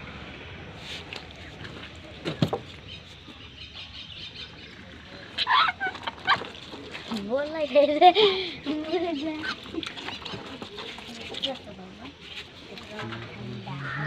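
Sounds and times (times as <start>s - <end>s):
chickens squawking: 5.3s - 6.6s.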